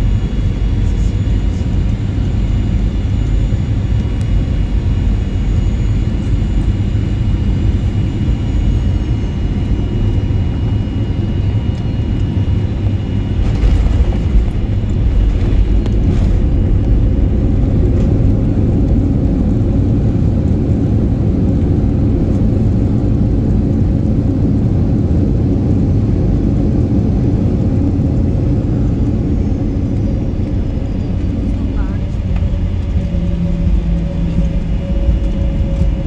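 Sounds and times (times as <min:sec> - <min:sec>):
faint high whine: 0:00.0 - 0:20.4
airplane cabin rumble: 0:00.0 - 0:36.0.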